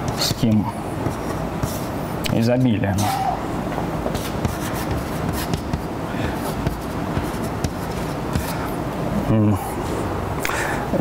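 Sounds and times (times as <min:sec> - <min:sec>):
chalk tapping on blackboard: 0:00.1 - 0:01.9, 0:04.1 - 0:08.6.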